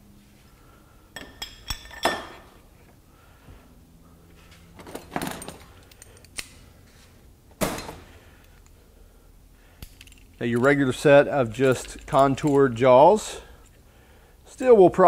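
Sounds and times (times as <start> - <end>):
metal pliers clinking: 5.1 - 6.6, 9.8 - 12.7.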